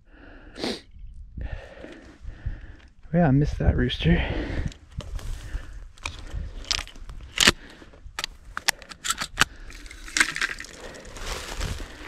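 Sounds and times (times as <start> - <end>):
wind rumble on microphone: 0.9 - 9.7
footsteps through dry grass: 5.0 - 8.5, 9.7 - 12.0.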